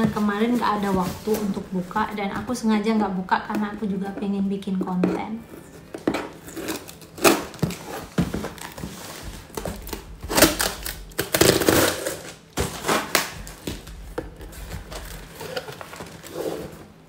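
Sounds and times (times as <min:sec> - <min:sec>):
cardboard rustling and knocking: 0:00.0 - 0:02.6, 0:05.0 - 0:10.7
tape ripping: 0:06.4 - 0:13.9.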